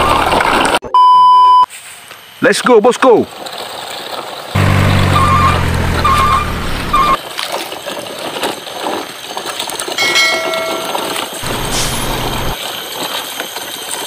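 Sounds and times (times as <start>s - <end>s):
truck engine humming: 4.6s - 7.2s, 10.0s - 12.6s
reversing alarm beeps: 5.0s - 7.2s
brief high-pitched tone: 10.0s - 12.6s.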